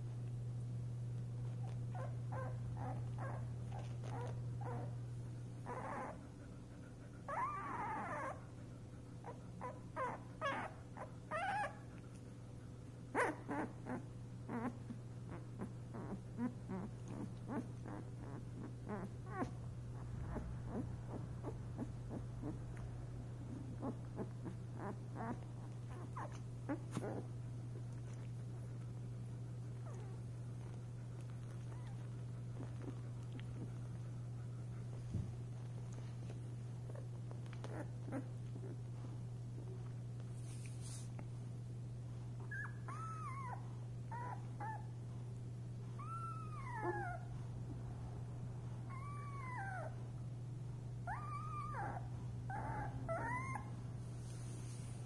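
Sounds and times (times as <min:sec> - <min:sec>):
steady low hum: 0:00.0 - 0:55.0
puppy whining: 0:01.2 - 0:41.4, 0:42.2 - 0:47.7, 0:48.7 - 0:55.0
puppies whimpering and squeaking: 0:01.4 - 0:05.0, 0:05.6 - 0:06.4, 0:07.2 - 0:08.6, 0:09.2 - 0:12.0, 0:13.1 - 0:29.0, 0:29.7 - 0:34.1, 0:34.9 - 0:39.7, 0:42.4 - 0:45.0, 0:45.9 - 0:47.3, 0:48.8 - 0:50.1, 0:51.0 - 0:53.8.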